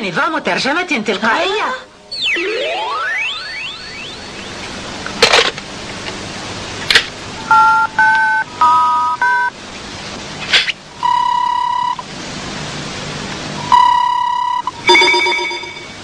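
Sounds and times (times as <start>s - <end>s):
steady telephone beep: 7.5s - 9.5s, 11.0s - 12.1s, 13.6s - 16.0s
two-tone keypad beeps: 13.6s - 16.0s.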